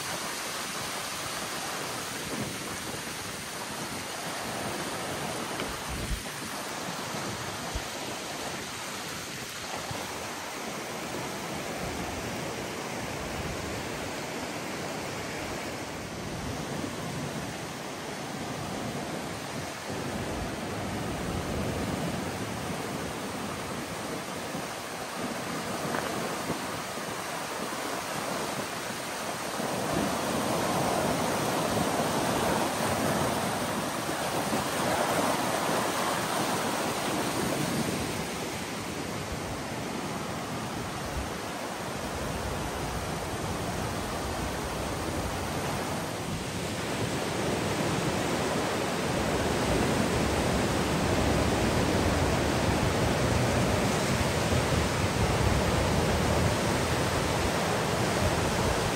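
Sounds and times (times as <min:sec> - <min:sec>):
flooded river rushing roar: 0:00.0 - 0:58.9.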